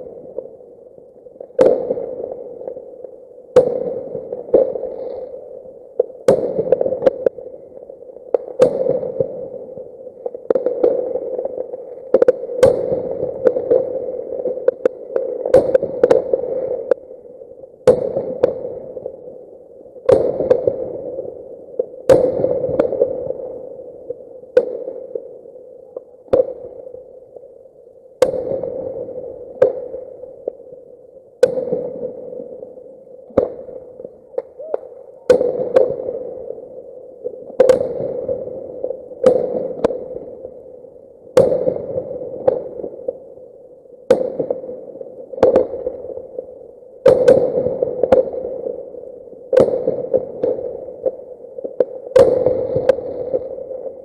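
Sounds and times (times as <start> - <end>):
fireworks banging: 33.3 - 33.7, 34.3 - 36.2, 52.1 - 53.2.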